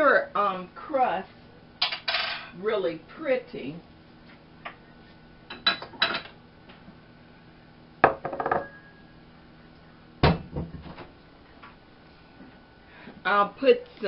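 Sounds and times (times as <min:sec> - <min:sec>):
dishes clinking on wooden table: 0:08.0 - 0:08.9
bowl set down ringing: 0:08.0 - 0:09.1.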